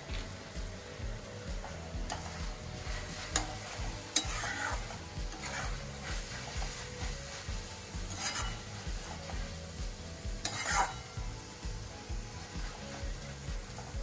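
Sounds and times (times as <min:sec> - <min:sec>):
frying sizzle: 0:00.0 - 0:14.0
metal spatula scraping wok: 0:01.6 - 0:14.0
spatula clinking against pan: 0:03.4 - 0:05.7, 0:08.1 - 0:08.7, 0:10.4 - 0:11.2.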